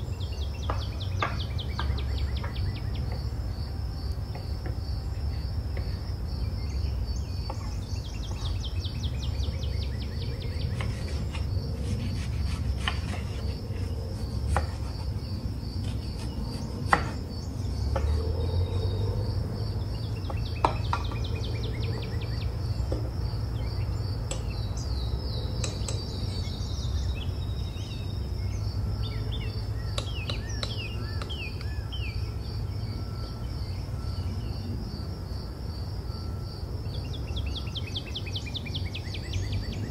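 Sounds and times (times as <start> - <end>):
bird calls: 0.0 - 3.4, 5.1 - 34.7
crickets chirping: 0.0 - 39.9.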